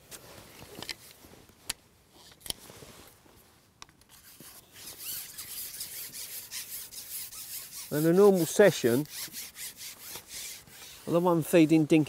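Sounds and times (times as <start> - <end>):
fishing pole rasping through hands: 4.1 - 11.2.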